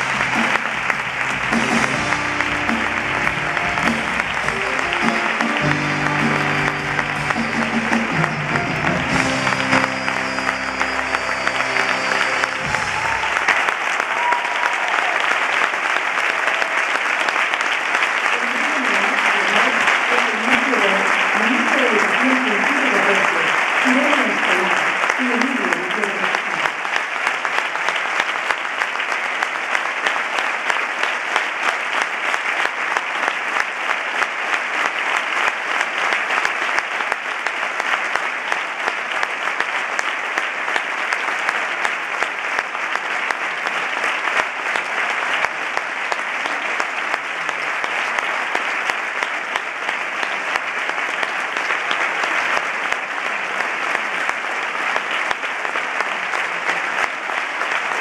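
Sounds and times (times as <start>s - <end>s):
large audience applauding: 0.0s - 58.0s.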